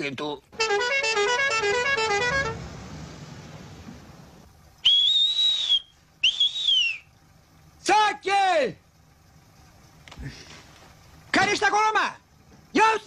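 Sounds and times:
man's two-finger whistle: 4.8 - 7.1.

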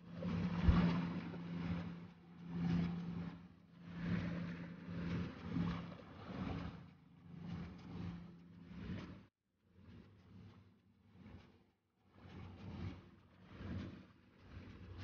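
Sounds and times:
boat engine humming: 0.0 - 9.2.

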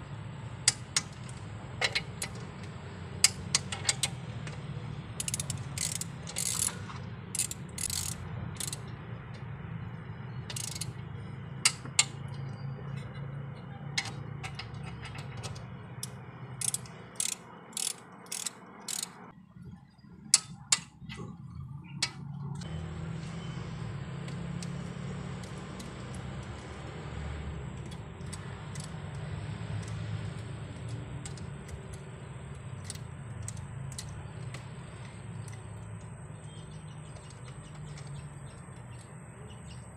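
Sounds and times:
ratchet wrench clicking: 0.6 - 4.2, 5.2 - 8.9, 10.5 - 11.0, 15.5 - 19.3, 25.4 - 26.9, 27.8 - 39.1.

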